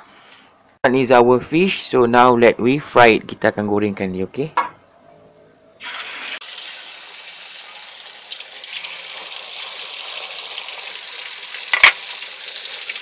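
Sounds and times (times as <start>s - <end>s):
fish deep-frying in hot oil: 5.8s - 13.0s.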